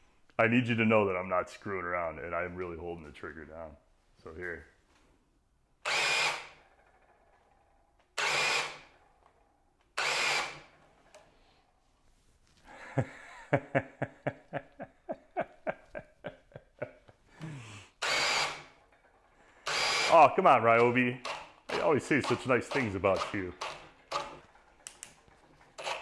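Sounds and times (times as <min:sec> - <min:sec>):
hammer drill motor stalling: 0:05.8 - 0:11.5, 0:17.4 - 0:26.0.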